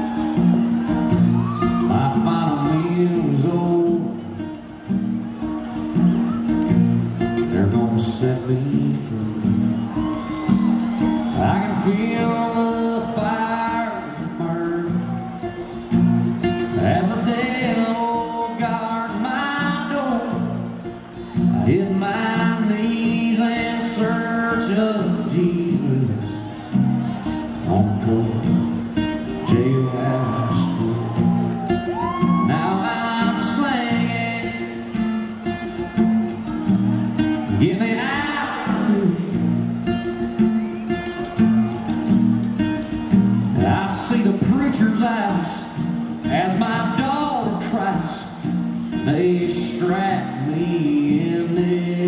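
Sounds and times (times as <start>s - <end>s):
acoustic guitar: 0.0s - 52.0s
man singing: 1.6s - 4.3s, 7.4s - 9.7s, 11.3s - 15.2s, 16.7s - 20.7s, 21.5s - 26.6s, 27.5s - 28.8s, 29.4s - 35.8s, 37.4s - 39.5s, 43.6s - 52.0s.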